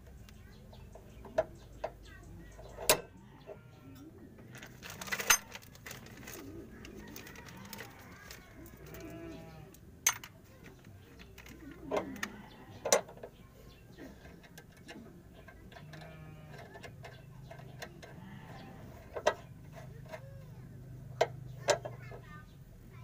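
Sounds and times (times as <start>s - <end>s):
wrench clinking on metal: 10.0s - 10.3s.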